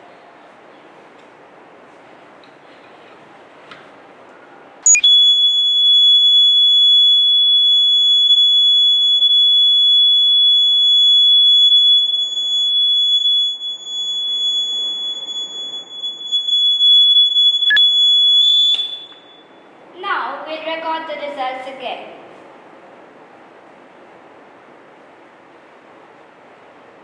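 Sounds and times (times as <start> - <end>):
high-pitched buzzer tone: 4.9 - 5.8.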